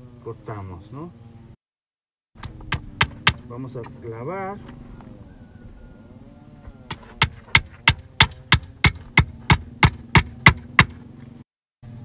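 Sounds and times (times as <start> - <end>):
hammer driving nail into wood: 2.4 - 3.4, 7.2 - 11.0.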